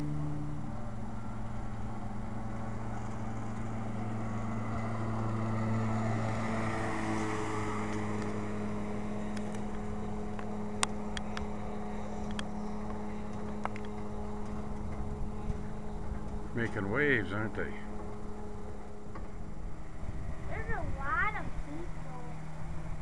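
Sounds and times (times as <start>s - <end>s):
boat motor humming: 0.0s - 23.0s
wind noise: 9.2s - 23.0s.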